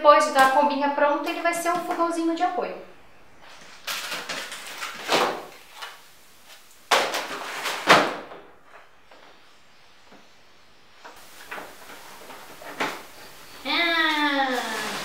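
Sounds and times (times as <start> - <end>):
packaging rustling and scraping: 3.4 - 8.8, 14.4 - 15.0.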